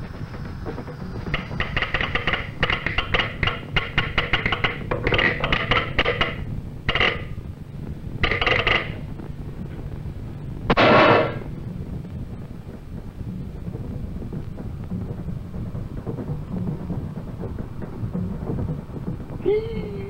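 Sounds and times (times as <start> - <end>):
rapid sharp clattering clicks: 0.0 - 10.0
steady low hum: 0.0 - 20.0.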